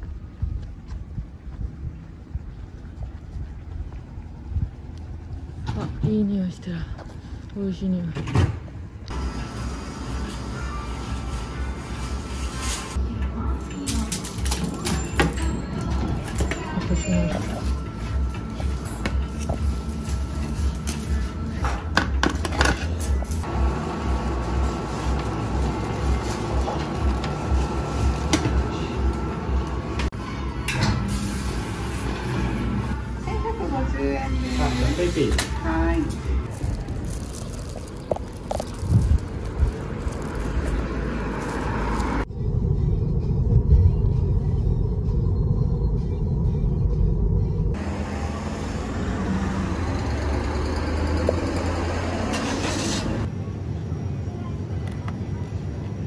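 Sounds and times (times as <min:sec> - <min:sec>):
steady low rumble: 0:00.0 - 0:07.8, 0:31.6 - 0:49.2
road traffic rumble and hiss: 0:00.0 - 0:14.7, 0:16.2 - 0:45.2, 0:47.7 - 0:56.0.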